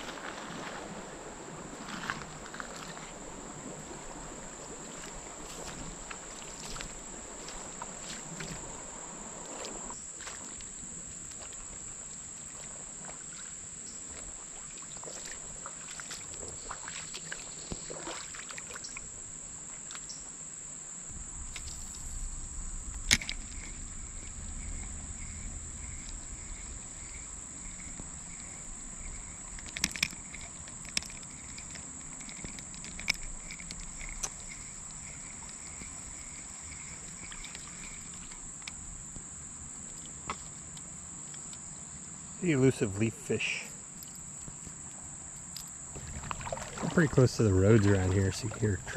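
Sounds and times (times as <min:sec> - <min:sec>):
high-pitched insect drone: 0:13.3 - 0:40.5
low rumble: 0:21.1 - 0:29.7.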